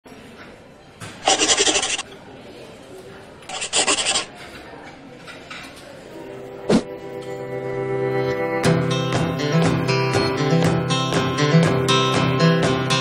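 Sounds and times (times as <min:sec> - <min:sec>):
scratchy scribbling rasps: 0:01.2 - 0:02.0, 0:03.5 - 0:04.3.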